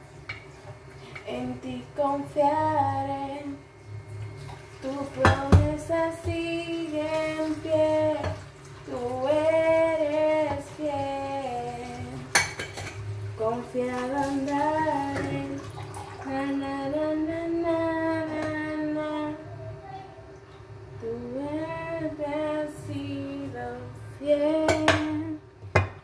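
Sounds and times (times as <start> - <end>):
woman singing: 1.2 - 3.7, 4.8 - 12.3, 13.4 - 19.6, 21.0 - 25.5
kitchenware clink: 12.3 - 13.0.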